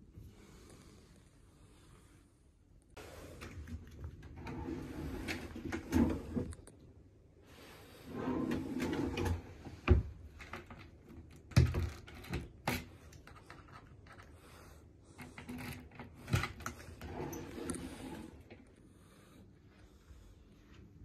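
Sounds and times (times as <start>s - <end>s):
drawer sliding on runners: 4.3s - 6.5s, 7.6s - 10.2s, 16.1s - 18.4s.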